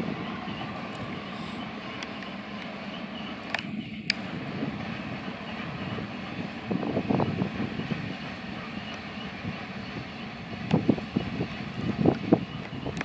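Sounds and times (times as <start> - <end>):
distant freight train rumble: 0.0 - 13.0
wind buffeting microphone: 0.0 - 13.0.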